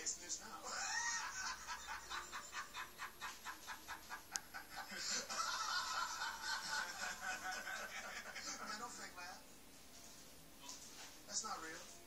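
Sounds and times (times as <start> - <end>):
man laughing through tv speaker: 0.6 - 8.9.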